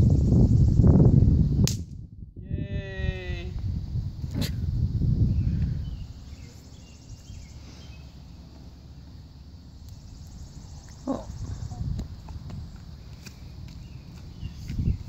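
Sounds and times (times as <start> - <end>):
snap pop cracking on concrete: 1.6 - 2.0.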